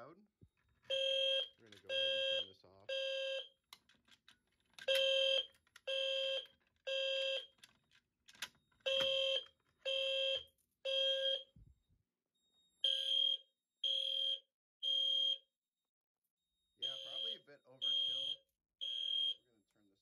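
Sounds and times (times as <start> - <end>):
fire alarm horns blasting: 0.9 - 3.6, 4.9 - 7.6, 8.8 - 11.5, 12.8 - 15.5, 16.8 - 20.0.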